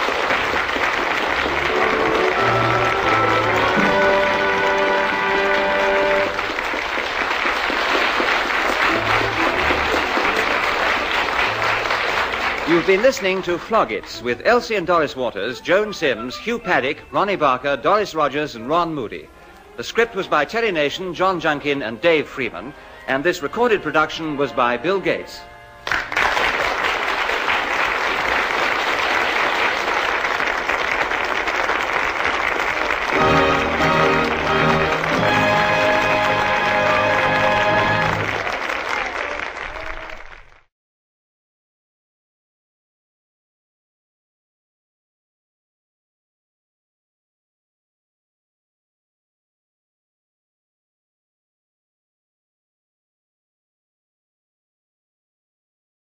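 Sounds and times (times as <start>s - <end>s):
audience applauding: 0.0s - 14.2s, 25.8s - 40.7s
music with held notes: 1.3s - 6.6s, 8.7s - 12.6s, 15.2s - 20.4s, 22.2s - 26.1s, 33.1s - 38.6s.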